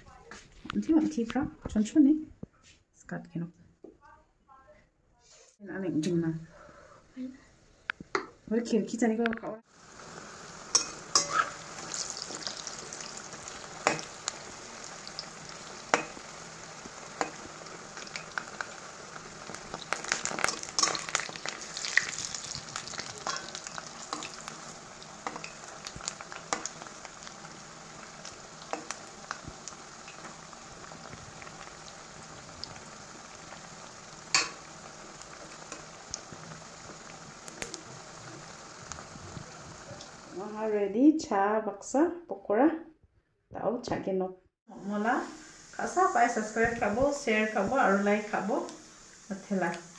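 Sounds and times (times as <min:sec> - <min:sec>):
oil sizzling in a wok: 0:09.6 - 0:40.9, 0:44.7 - 0:49.9
metal spatula clicking and scraping: 0:10.7 - 0:11.6, 0:20.2 - 0:21.5, 0:22.9 - 0:24.4.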